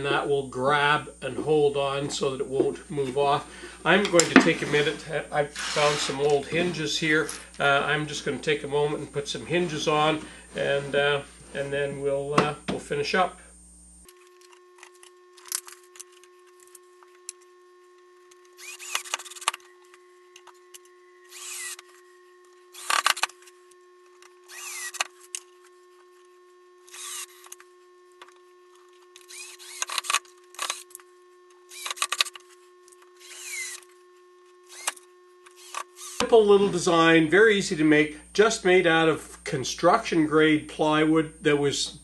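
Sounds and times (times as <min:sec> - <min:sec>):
cordless drill bursts: 0:05.5 - 0:06.6, 0:18.1 - 0:25.9, 0:26.7 - 0:28.1, 0:29.1 - 0:36.3.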